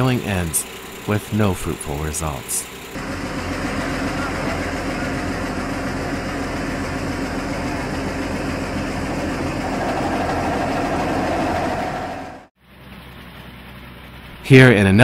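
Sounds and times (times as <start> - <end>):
heavy engine idling: 0.0 - 14.4.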